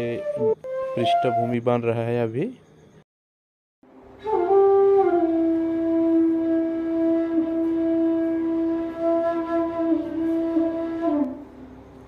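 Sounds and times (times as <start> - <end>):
flute-like long note: 0.0 - 1.7, 4.2 - 11.6.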